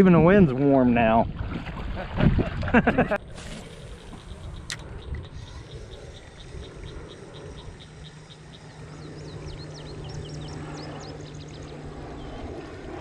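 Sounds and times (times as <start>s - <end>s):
steady low drone: 2.6s - 13.0s
wild birds singing: 3.4s - 13.0s.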